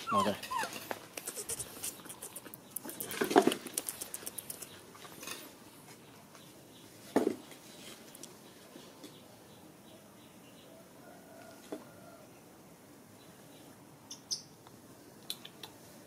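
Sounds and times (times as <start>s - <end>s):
animal squeaking: 0.0s - 3.0s.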